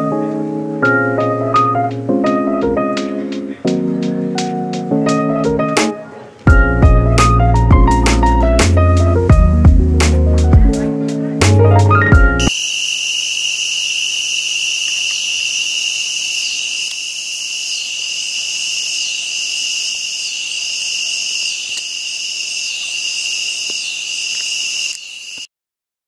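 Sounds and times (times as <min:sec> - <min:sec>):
crickets and insects trilling: 0:12.4 - 0:25.5.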